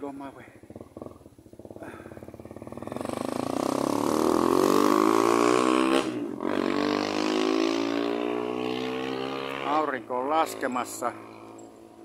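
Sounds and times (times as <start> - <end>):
vehicle engine passing by: 2.6 - 12.0.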